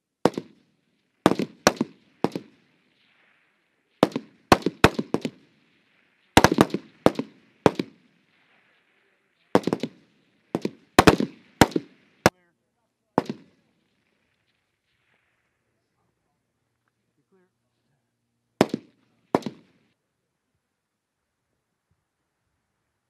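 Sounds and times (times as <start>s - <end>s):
rifle shots with echo: 0.2s - 12.4s, 13.2s - 15.8s, 18.6s - 19.9s.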